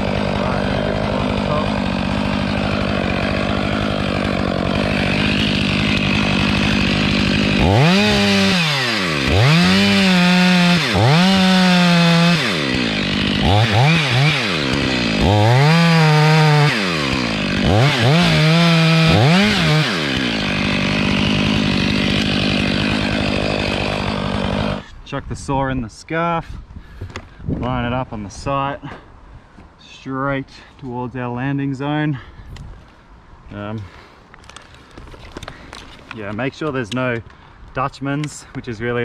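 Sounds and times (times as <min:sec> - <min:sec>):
chainsaw revving: 0:00.0 - 0:24.9.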